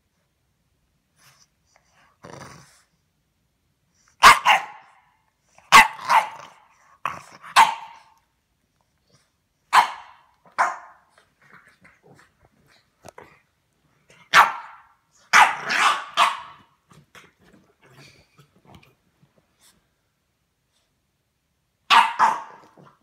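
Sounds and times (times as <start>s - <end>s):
dog barking sharply: 4.2s - 5.0s, 9.7s - 11.0s, 14.3s - 16.6s, 21.9s - 22.6s.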